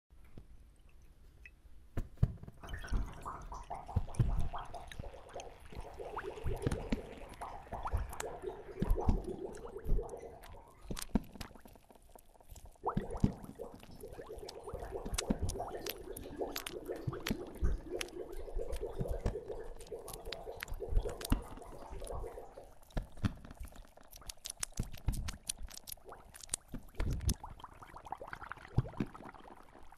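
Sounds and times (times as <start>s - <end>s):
wet liquid sounds: 0.2s - 29.9s
irregular clicks: 10.4s - 13.9s, 22.9s - 27.5s.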